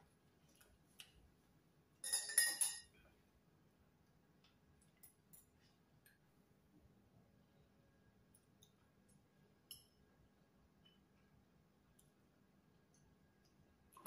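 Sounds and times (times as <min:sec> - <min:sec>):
utensils clinking on ceramic: 0:02.0 - 0:03.0.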